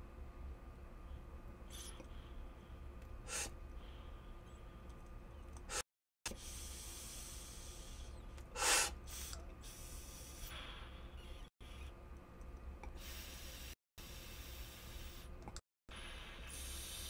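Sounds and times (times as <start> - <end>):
person inhaling through vaporizer: 3.3 - 4.4, 5.7 - 11.3, 12.9 - 17.0.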